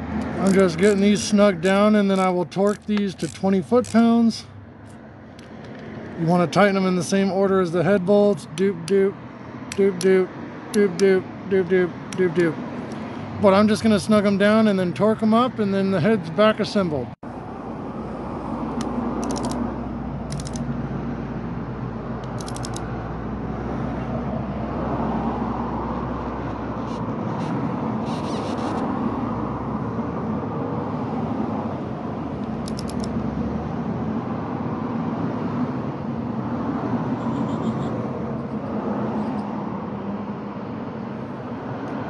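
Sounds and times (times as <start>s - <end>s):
road traffic rumble: 0.0s - 42.0s
hand ratchet clicking: 2.1s - 4.2s, 18.8s - 19.6s, 22.2s - 22.8s.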